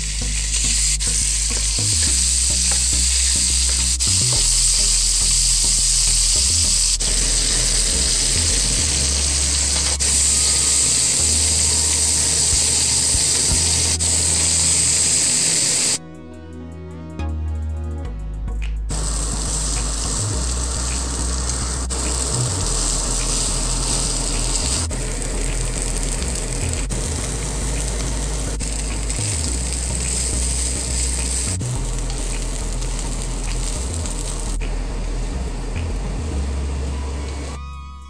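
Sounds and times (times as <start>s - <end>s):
rice sizzling in a pan: 0.0s - 16.0s, 18.9s - 35.0s
low hum: 16.0s - 38.0s.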